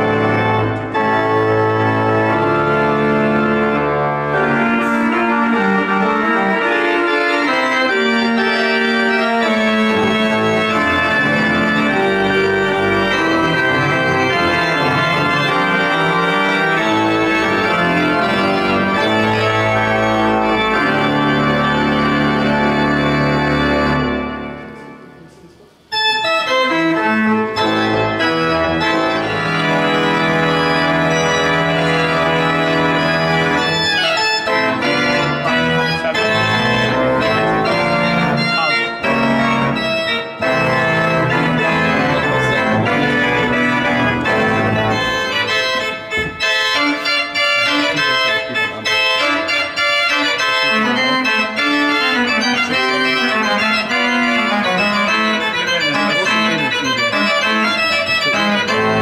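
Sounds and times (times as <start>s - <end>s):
pipe organ played loudly: 0.0s - 25.3s, 25.9s - 59.0s.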